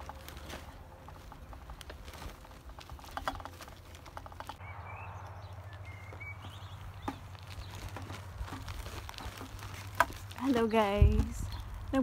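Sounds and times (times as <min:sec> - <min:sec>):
footsteps crunching on a path: 0:00.0 - 0:12.0
bird chirps: 0:04.5 - 0:07.9
wind rumble on microphone: 0:04.6 - 0:12.0.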